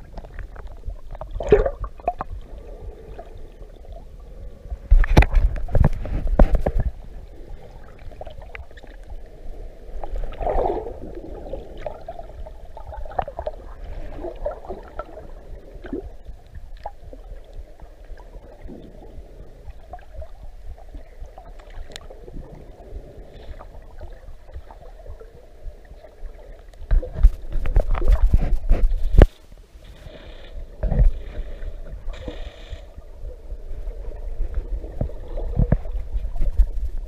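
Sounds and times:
water gurgling: 0.0s - 29.3s, 29.9s - 37.0s
faint clicks and crackles: 0.0s - 37.0s
underwater watery wash: 0.0s - 37.0s.

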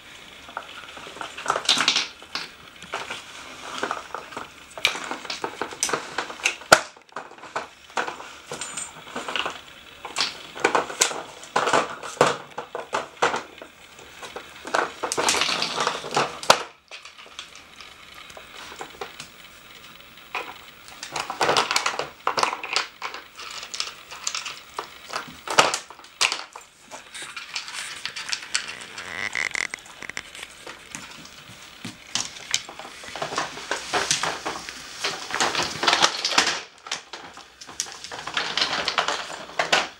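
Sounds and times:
plastic puzzle pieces clacking: 3.8s - 31.3s.

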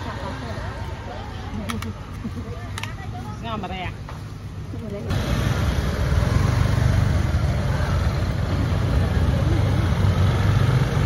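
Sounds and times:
engine running: 5.1s - 11.0s.

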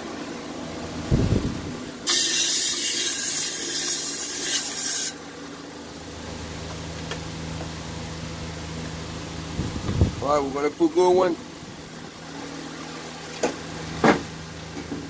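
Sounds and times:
loud hiss of pressurized air: 2.0s - 5.2s.

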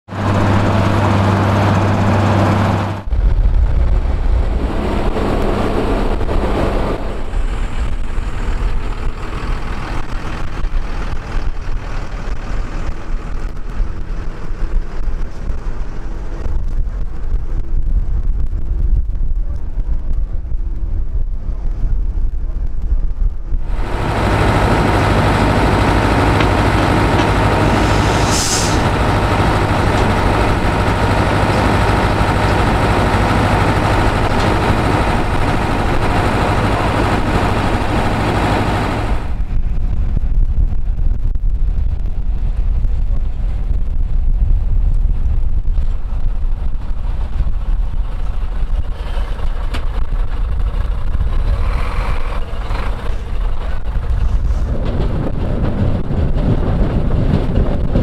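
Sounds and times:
diesel machinery running: 0.1s - 18.1s, 23.4s - 58.0s
brief hiss: 27.8s - 28.9s.

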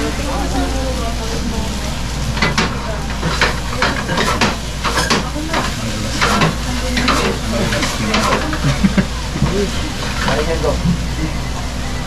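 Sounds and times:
rice sizzling in a frying pan: 0.0s - 12.0s
metal utensil scraping a pan: 2.4s - 8.8s.

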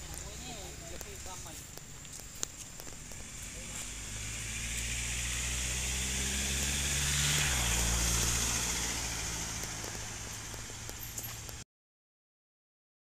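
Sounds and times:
vehicle engine passing by: 2.8s - 11.6s.

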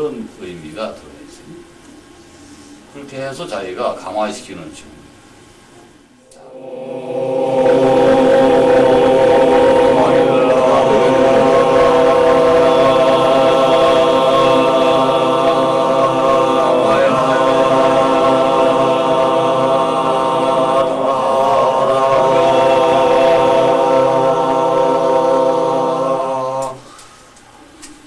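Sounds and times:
person chanting on one pitch: 6.3s - 27.1s.

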